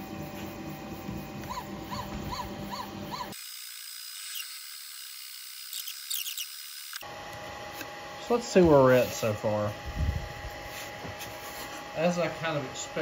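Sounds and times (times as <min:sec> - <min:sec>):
steady hum: 0:00.0 - 0:03.4, 0:06.2 - 0:13.0
stepper motors whirring: 0:00.0 - 0:07.1.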